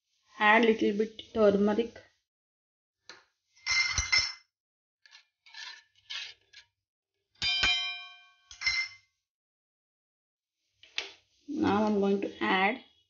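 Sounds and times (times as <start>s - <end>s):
metal spoon scraping a pot: 5.0s - 6.6s
spoon striking pot with clang: 7.4s - 9.0s.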